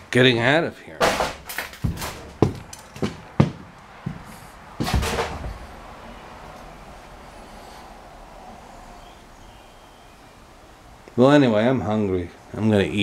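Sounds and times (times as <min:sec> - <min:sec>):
faint room tone hiss: 0:00.0 - 0:13.0
footsteps on debris-strewn floor: 0:01.1 - 0:05.6.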